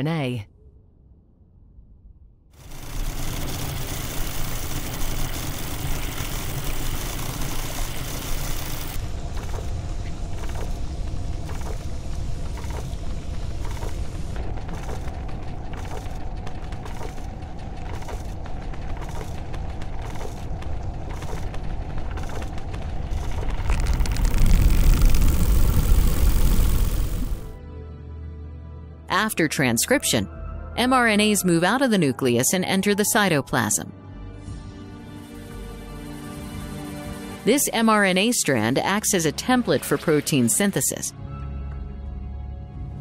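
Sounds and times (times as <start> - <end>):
mechanical whirring and churning: 2.6 - 27.6
deep rumble: 8.8 - 27.6.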